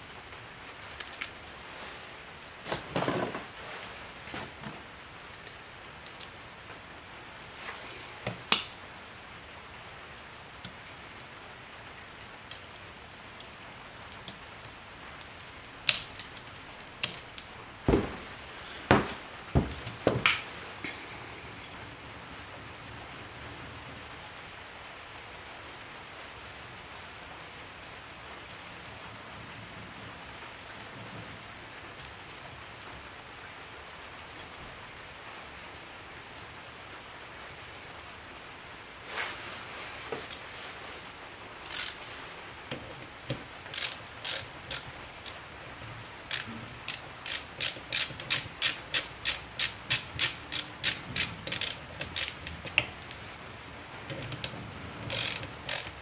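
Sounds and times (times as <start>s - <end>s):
steady low hiss: 0.0s - 56.0s
sharp metallic ratchet clicks: 41.6s - 42.0s, 43.7s - 45.4s, 46.3s - 52.8s, 55.1s - 56.0s.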